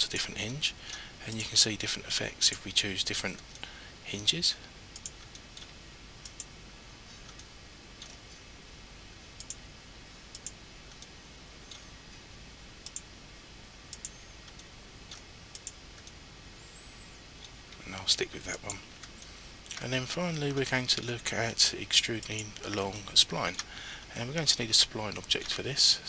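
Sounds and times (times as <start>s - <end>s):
faint steady hiss: 0.0s - 26.0s
computer mouse clicking: 5.0s - 6.5s, 9.4s - 9.6s, 10.3s - 12.0s, 12.8s - 13.1s, 13.9s - 16.2s.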